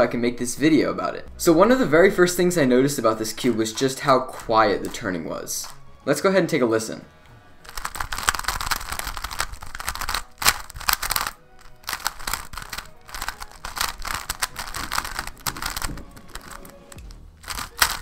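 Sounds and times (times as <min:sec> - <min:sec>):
plastic puzzle cube clicking: 0:07.6 - 0:18.0.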